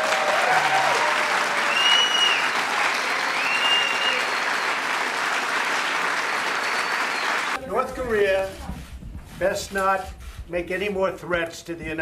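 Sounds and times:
audience applauding: 0.0 - 7.6
long whistle from crowd: 1.6 - 4.8, 6.6 - 7.6.

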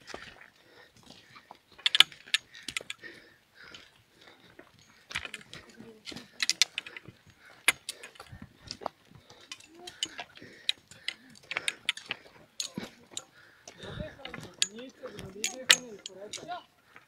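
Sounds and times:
walking poles clicking on rock: 0.0 - 17.0.

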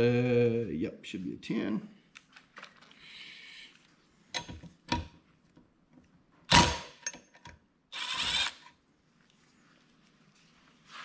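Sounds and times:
cordless driver bursts: 7.9 - 8.7.

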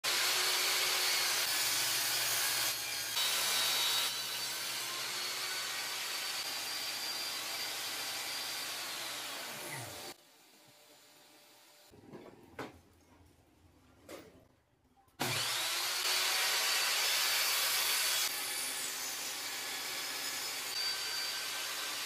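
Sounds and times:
saw blade cutting wood: 0.0 - 10.2, 15.2 - 22.0
table saw motor whine: 0.1 - 10.2, 15.2 - 22.0.

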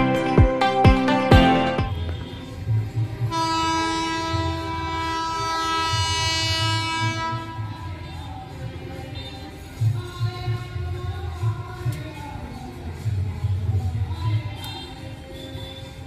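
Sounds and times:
locomotive horn blast: 3.3 - 7.7.

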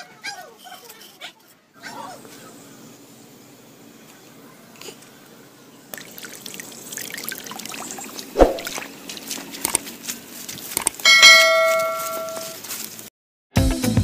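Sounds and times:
propeller churning water: 5.8 - 11.1
bell-like chime: 11.1 - 12.6.

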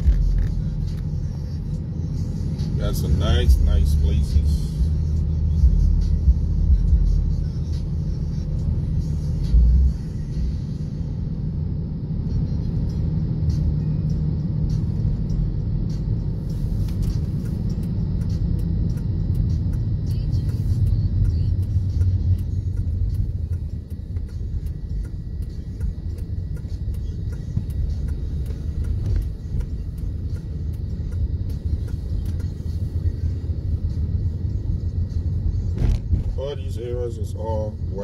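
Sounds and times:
car cabin road noise: 0.0 - 38.0.

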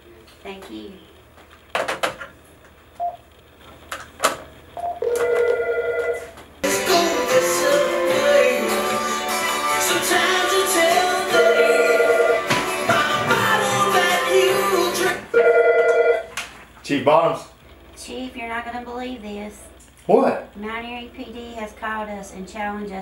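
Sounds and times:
electronic telephone ringing: 4.8 - 6.3, 11.3 - 12.5, 15.4 - 16.3
loud music: 6.6 - 15.4.

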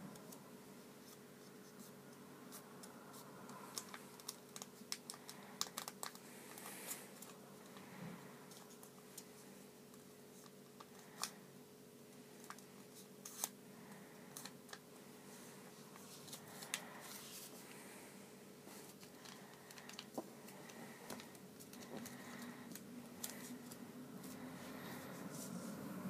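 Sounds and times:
low steady hum: 0.0 - 26.0
paper rustling: 3.1 - 7.4.

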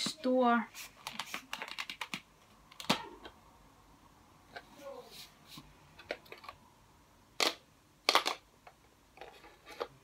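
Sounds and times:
clicks and knocks handling chalk: 1.0 - 3.4.

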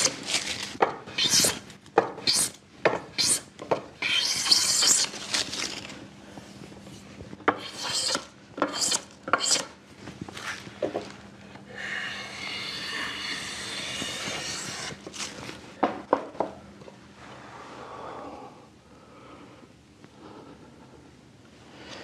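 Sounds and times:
hand plane shaving wood: 7.6 - 9.7, 12.3 - 15.2.

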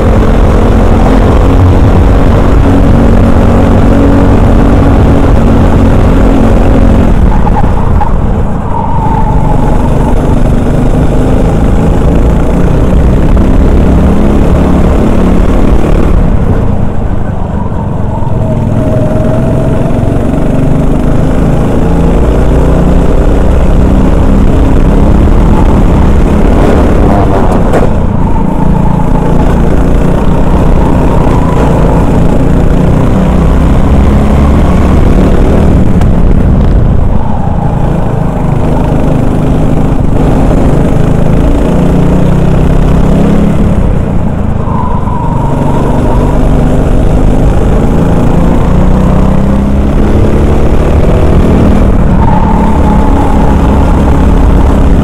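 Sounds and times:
kart engine revving: 0.0 - 55.0.

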